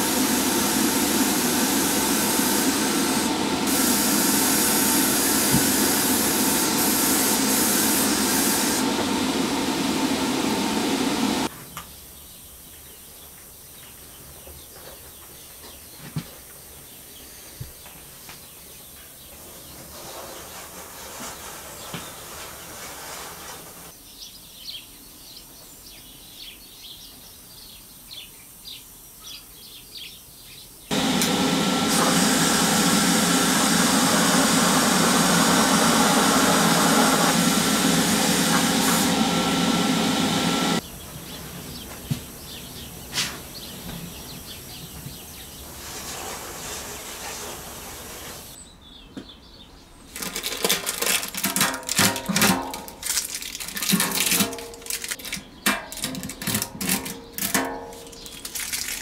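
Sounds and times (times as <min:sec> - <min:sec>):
paint spray hissing: 0:00.0 - 0:11.5, 0:30.9 - 0:40.8
gloved hands clicking and rustling: 0:50.1 - 0:59.0.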